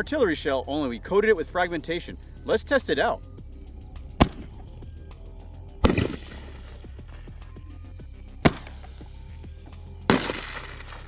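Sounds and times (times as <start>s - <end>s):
background music with steady beat: 0.0s - 11.0s
firework bangs: 5.8s - 6.8s, 10.1s - 11.0s.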